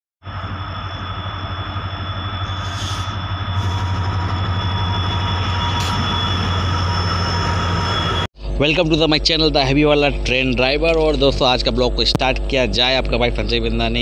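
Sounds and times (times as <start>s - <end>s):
thin high whine: 0.2s - 9.4s
locomotive low drone: 0.2s - 14.0s.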